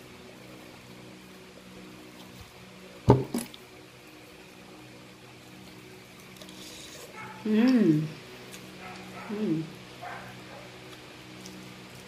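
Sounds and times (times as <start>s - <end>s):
faint steady hum: 0.0s - 12.0s
loud wet slurp: 6.4s - 7.1s.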